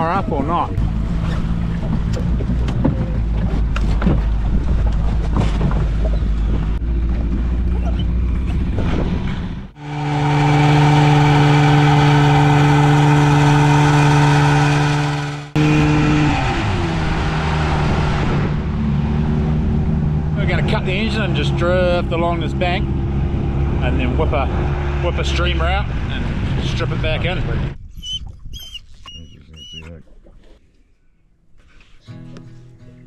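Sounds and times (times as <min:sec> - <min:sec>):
outboard motor running: 0:00.0 - 0:09.0, 0:09.6 - 0:25.6.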